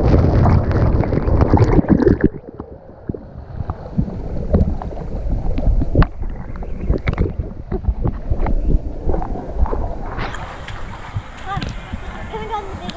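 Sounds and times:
water sloshing: 0.0s - 12.9s
water splashing: 0.0s - 12.9s.

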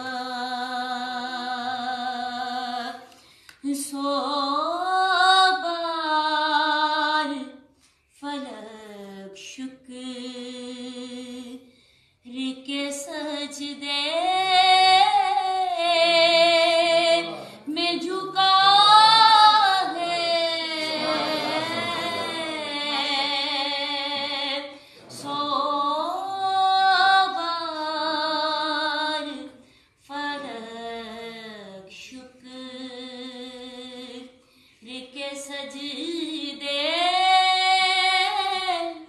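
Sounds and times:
woman singing unaccompanied: 8.2s - 11.6s, 12.3s - 39.0s.

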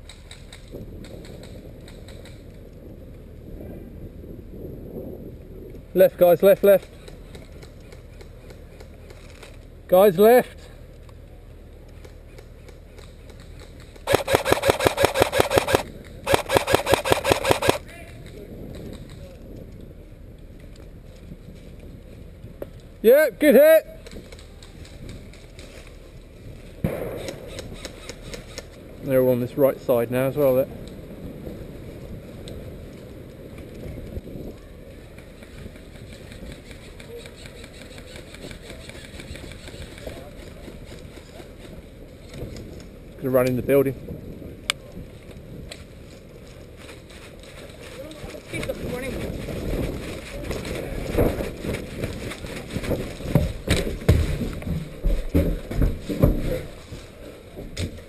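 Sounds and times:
airsoft gun firing full auto: 14.1s - 17.8s.

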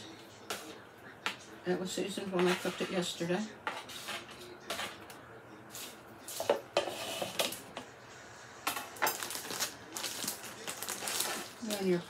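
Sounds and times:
knife scraping and clinking on plate: 6.3s - 7.7s.

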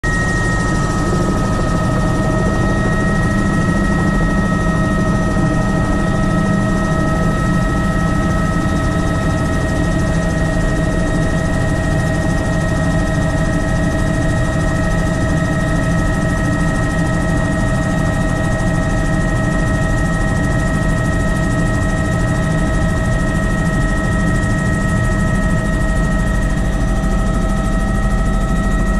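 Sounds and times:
helicopter turbine and rotor: 0.0s - 28.9s.

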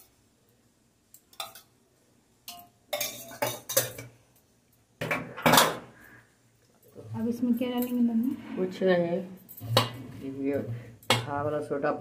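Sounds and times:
metal spoon scraping metal bowl: 9.5s - 11.2s.

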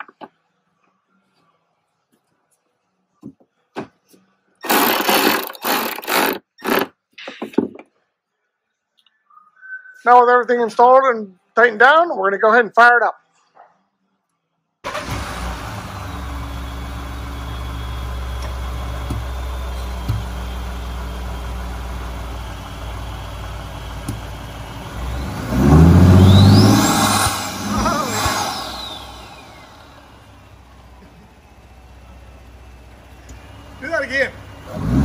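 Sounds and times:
truck engine idling and revving: 14.9s - 35.0s
high turbo whistle: 15.8s - 18.7s, 24.9s - 30.4s.

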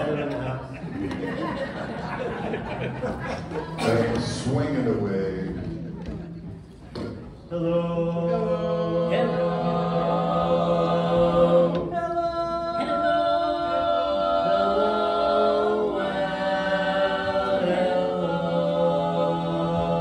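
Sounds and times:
male quartet singing a cappella: 7.5s - 20.0s.

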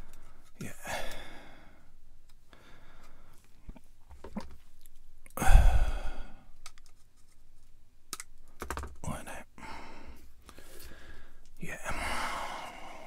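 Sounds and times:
loud breathy exhale: 5.4s - 6.4s.

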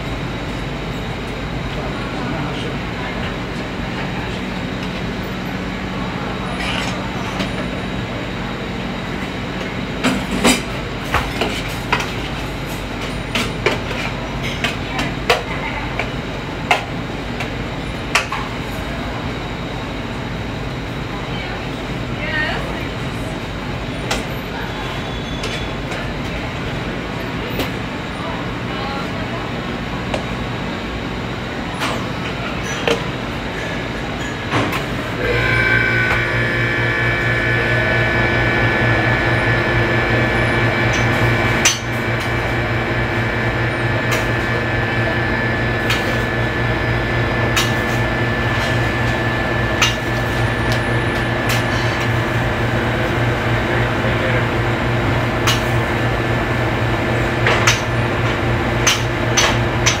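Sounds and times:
kitchen machine noise: 0.0s - 19.5s, 31.0s - 60.0s
motor humming with high whine: 34.7s - 60.0s.

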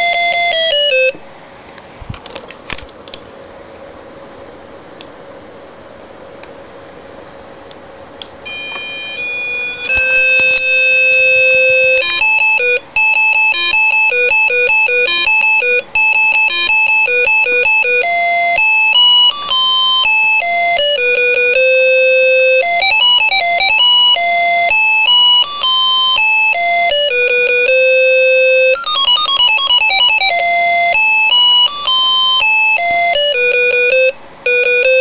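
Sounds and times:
square-wave melody on small speaker: 0.0s - 1.2s, 8.4s - 35.0s.

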